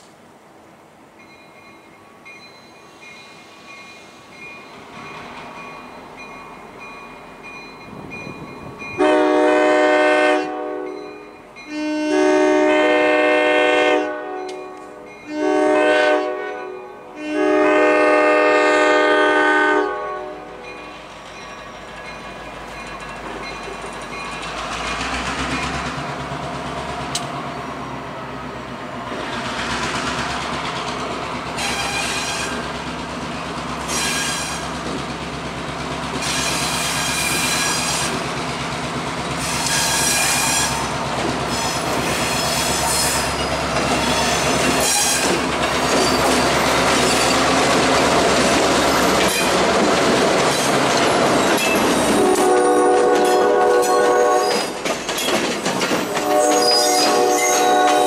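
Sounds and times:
locomotive horn blasts: 9.0s - 20.6s, 52.1s - 54.6s, 56.1s - 58.0s.

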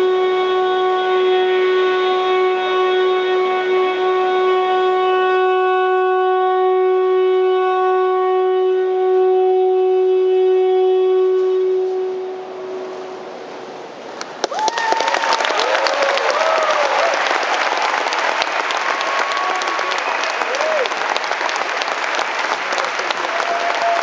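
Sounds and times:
band holding reedy drone: 0.0s - 14.1s.

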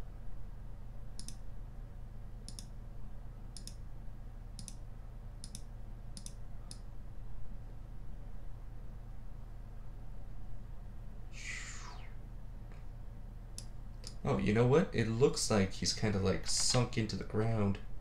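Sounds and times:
steady low hum: 0.0s - 18.0s
mouse buttons clicking: 1.2s - 1.4s, 2.4s - 2.7s, 3.6s - 3.8s, 4.6s - 4.8s, 5.4s - 6.9s.

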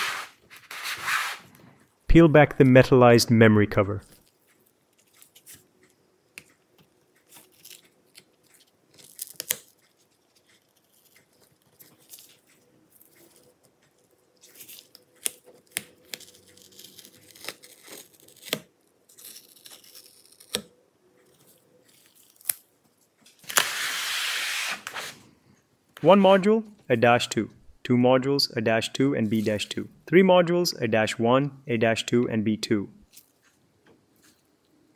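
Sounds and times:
adhesive film peeling: 7.3s - 12.5s, 14.4s - 20.7s, 23.4s - 25.2s.

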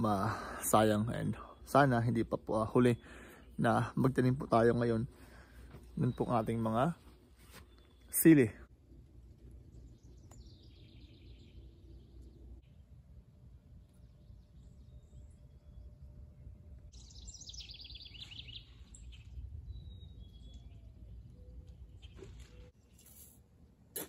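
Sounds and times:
songbird singing: 0.0s - 23.1s.

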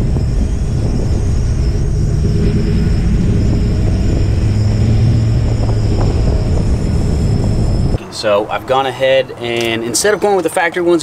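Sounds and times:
tyre and road noise: 0.0s - 11.0s.

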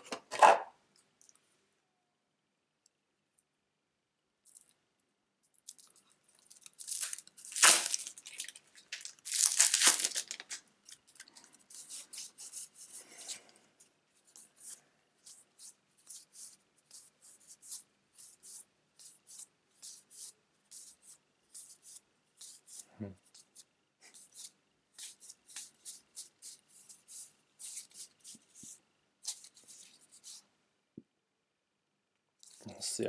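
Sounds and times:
plastic shrink-wrap tearing: 5.6s - 11.4s.

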